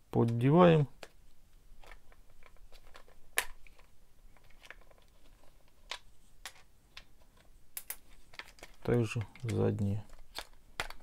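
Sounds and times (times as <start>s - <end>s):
plastic clicks and scrapes: 1.8s - 11.0s
plastic snap: 7.8s - 11.0s.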